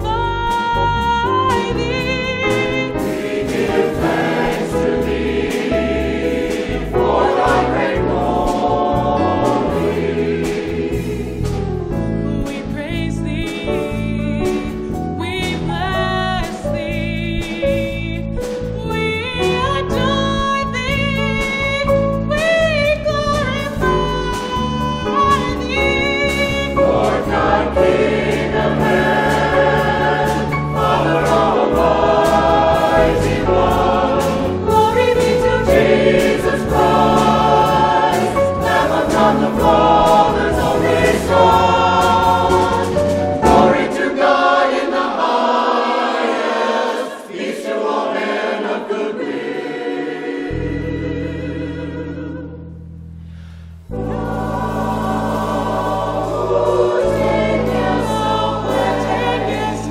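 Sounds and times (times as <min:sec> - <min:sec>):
gospel choir singing: 0:00.0 - 0:17.9, 0:22.6 - 0:52.6, 0:53.9 - 0:59.9
piano bass and drums: 0:00.0 - 0:44.2, 0:53.8 - 0:59.9.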